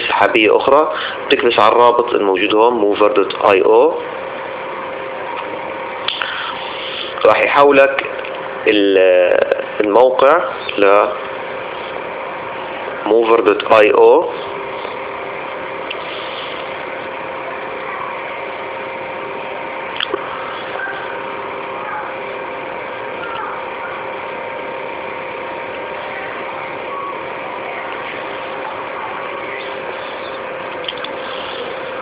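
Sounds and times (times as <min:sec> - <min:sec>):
background hum and hiss: 0:00.0 - 0:32.0
faint held tones: 0:14.4 - 0:32.0.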